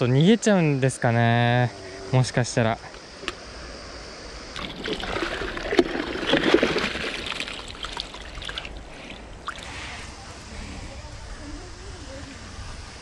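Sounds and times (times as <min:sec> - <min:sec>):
river running: 0:02.9 - 0:10.5
water splashing and sloshing: 0:04.6 - 0:09.8.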